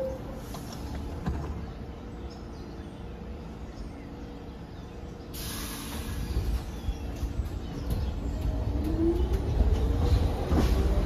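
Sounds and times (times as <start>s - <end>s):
train equipment humming: 0.0s - 11.0s
air brakes hissing: 5.3s - 6.5s.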